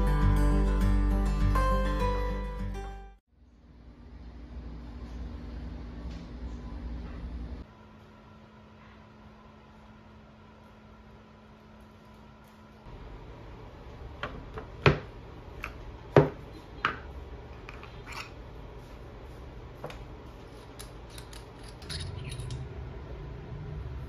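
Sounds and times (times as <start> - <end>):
objects knocking on wooden table: 16.1 - 17.0
metallic clicks and clinks: 20.6 - 22.7.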